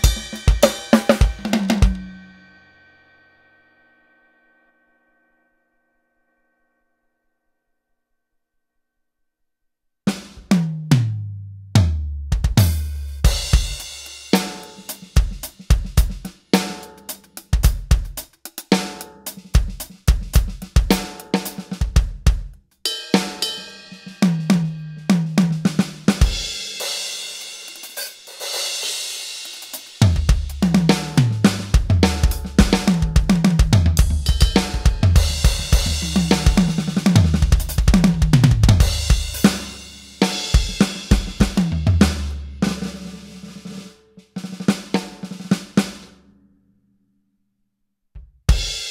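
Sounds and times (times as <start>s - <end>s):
electronic drum kit beat: 0.0s - 2.3s, 11.8s - 46.0s, 48.2s - 48.9s
cymbal ringing: 0.0s - 5.4s.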